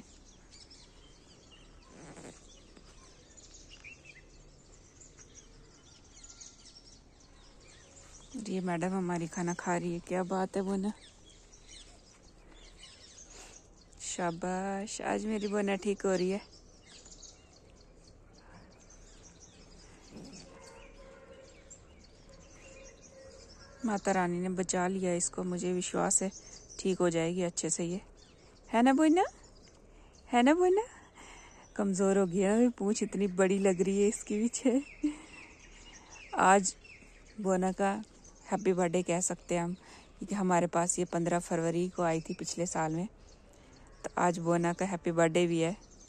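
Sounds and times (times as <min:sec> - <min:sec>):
faint birds chirping: 0:00.0 - 0:46.0
brief rustle: 0:01.8 - 0:04.0.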